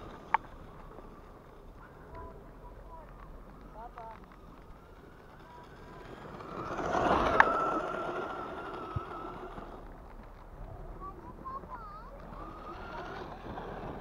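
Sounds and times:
electric motor whine: 2.2s - 9.9s, 12.1s - 14.0s.

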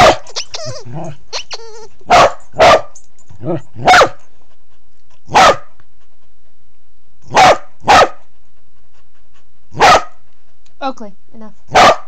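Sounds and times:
dog barking: 0.0s - 0.3s, 2.1s - 3.0s, 3.8s - 4.2s, 5.3s - 5.7s, 7.3s - 8.2s, 9.8s - 10.2s, 11.7s - 12.0s.

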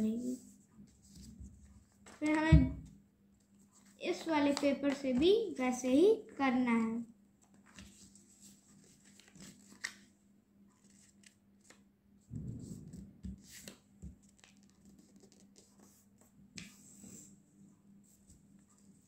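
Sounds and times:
paper being folded and creased: 1.9s - 2.4s, 7.4s - 10.1s, 10.8s - 11.8s, 12.9s - 16.0s.

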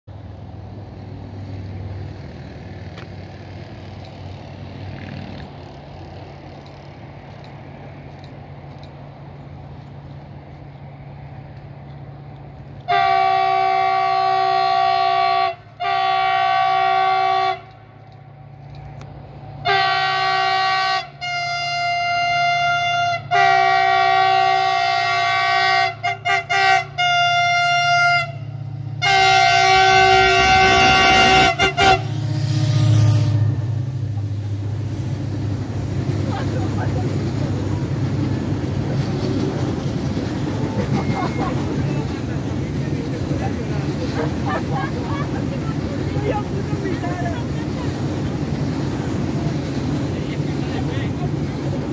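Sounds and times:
train rumble: 0.1s - 51.9s
train horn blasts: 12.8s - 17.8s, 19.6s - 33.8s.

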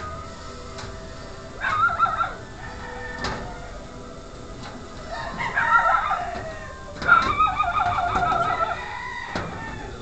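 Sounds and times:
rooster crowing: 1.6s - 4.0s, 5.0s - 10.0s.

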